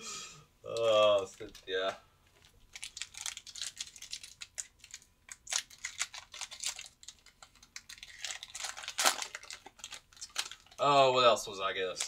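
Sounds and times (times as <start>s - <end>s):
foil wrapper crinkling and tearing: 2.4s - 11.0s.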